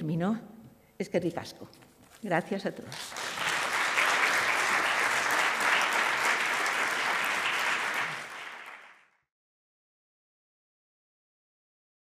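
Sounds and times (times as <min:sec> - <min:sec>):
audience applauding: 0:02.9 - 0:09.2.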